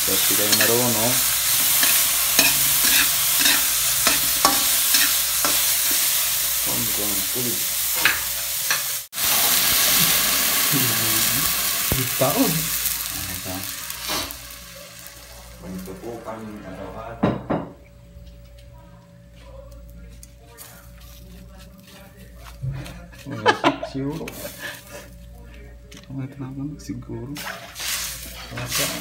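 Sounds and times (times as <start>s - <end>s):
spatula scraping metal wok: 0.0s - 6.4s
vegetables sizzling in wok: 0.0s - 17.1s, 24.2s - 25.1s, 27.3s - 29.0s.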